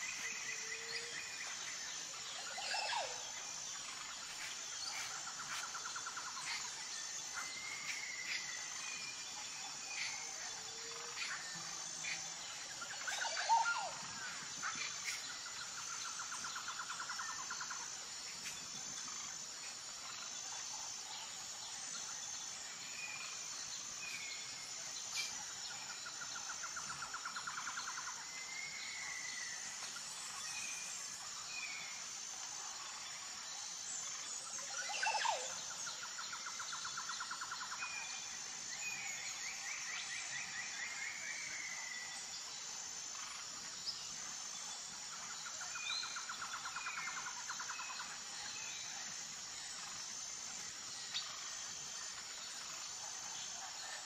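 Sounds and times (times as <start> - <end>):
insect chirring: 0.0 - 37.8.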